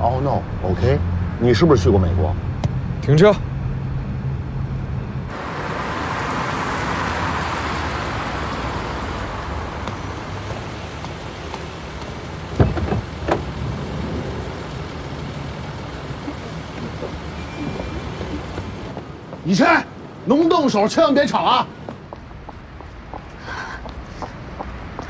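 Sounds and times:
tyres hissing on wet road: 0:05.3 - 0:18.9
car doors thudding: 0:09.8 - 0:13.6.

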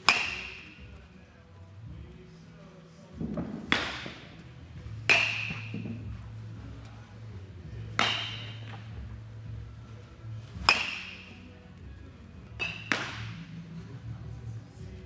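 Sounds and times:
bat cracking a ball: 0:00.0 - 0:00.8, 0:03.2 - 0:04.4, 0:05.0 - 0:06.2, 0:07.9 - 0:09.0, 0:10.5 - 0:11.4, 0:12.6 - 0:13.5
steady low hum: 0:00.0 - 0:15.0.

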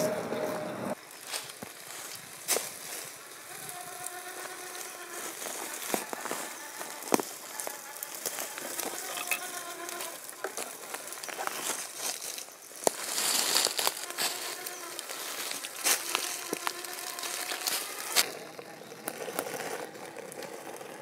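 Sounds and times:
leaves crackling: 0:00.0 - 0:21.0
twigs snapping: 0:05.4 - 0:20.4.

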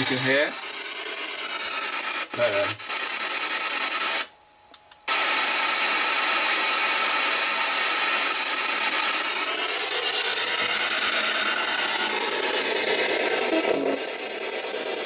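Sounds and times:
radio static rushing: 0:00.0 - 0:04.3, 0:05.1 - 0:15.0.

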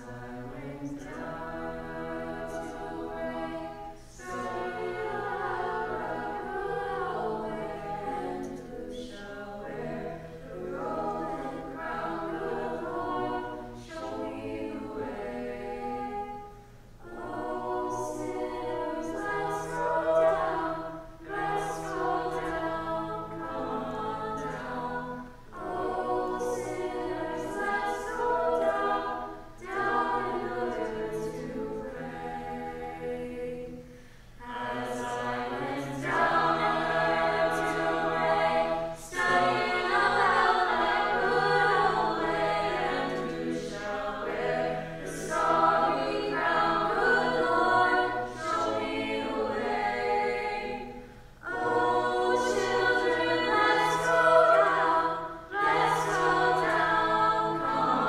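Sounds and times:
group of young voices singing: 0:00.0 - 0:58.0
singers breathing: 0:33.8 - 0:34.4.

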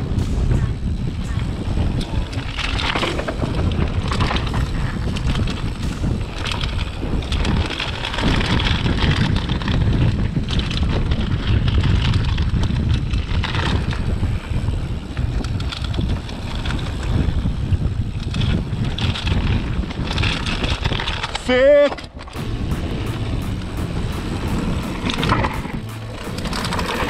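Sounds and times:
wind buffeting microphone: 0:00.0 - 0:21.4
bike tyres rolling on dirt: 0:00.0 - 0:22.2
bike rattles and knocks: 0:00.0 - 0:27.0.

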